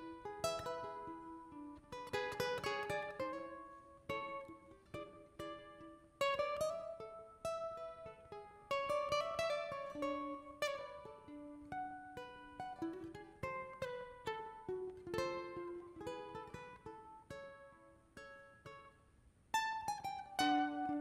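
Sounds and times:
plucked string melody: 0.0 - 21.0.

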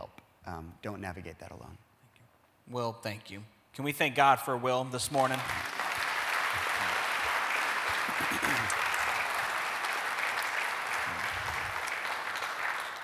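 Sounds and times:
crowd applauding: 5.2 - 13.0.

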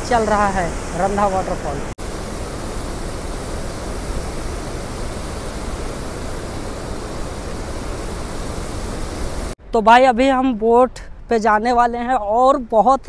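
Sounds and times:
waterfall rushing: 0.0 - 9.6.

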